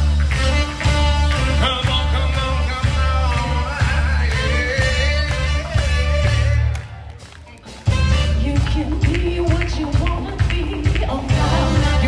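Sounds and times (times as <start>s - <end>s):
rock music: 0.0s - 12.0s.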